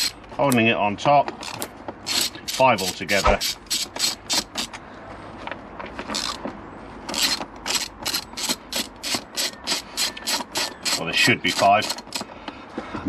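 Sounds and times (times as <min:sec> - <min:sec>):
hand ratchet clicking: 0:01.4 - 0:04.8, 0:06.1 - 0:06.4, 0:07.1 - 0:12.3.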